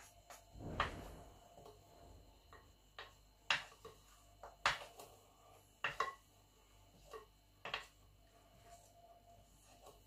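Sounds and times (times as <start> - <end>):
wooden spoon tapping plastic spoon: 2.5 - 5.2, 5.8 - 6.3, 6.9 - 8.0.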